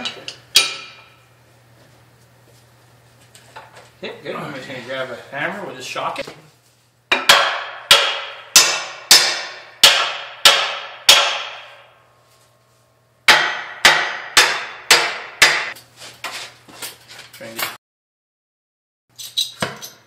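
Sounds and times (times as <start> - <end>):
hammer blows ringing on metal: 7.1 - 12.0, 13.3 - 15.8.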